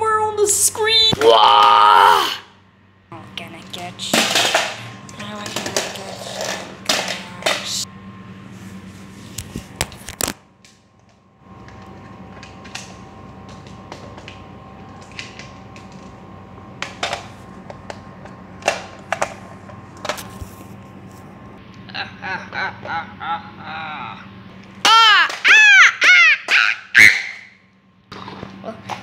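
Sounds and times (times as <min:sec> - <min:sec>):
steady low hum: 0:00.0 - 0:29.0.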